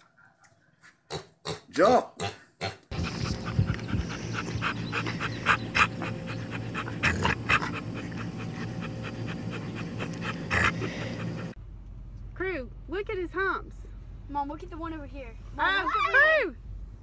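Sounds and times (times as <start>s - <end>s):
dog panting rapidly: 2.9s - 11.6s
steady low hum: 2.9s - 17.0s.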